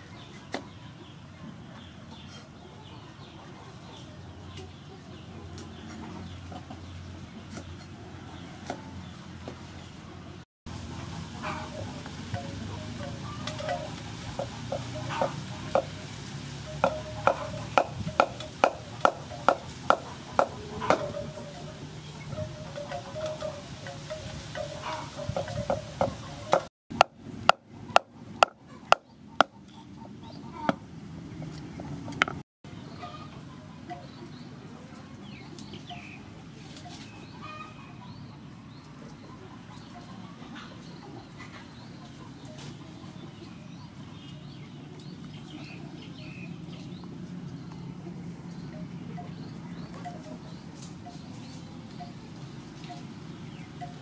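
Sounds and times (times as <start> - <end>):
chickens clucking: 0.0 - 54.0
small birds chirping: 11.4 - 26.7, 31.4 - 54.0
cleaver chopping on wooden block: 16.8 - 21.1.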